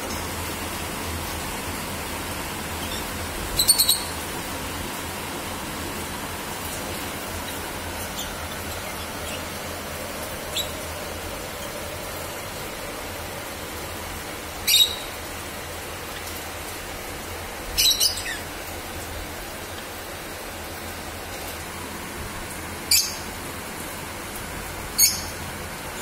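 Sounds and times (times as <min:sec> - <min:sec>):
sparrows chirping: 0:02.7 - 0:04.3, 0:07.1 - 0:12.1, 0:14.6 - 0:15.2, 0:17.6 - 0:18.6, 0:22.9 - 0:23.3.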